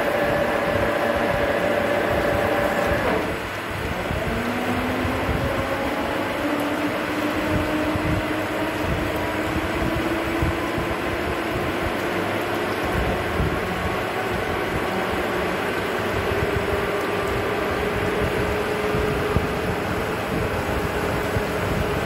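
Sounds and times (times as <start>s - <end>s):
metal lathe cutting: 0.0s - 3.4s.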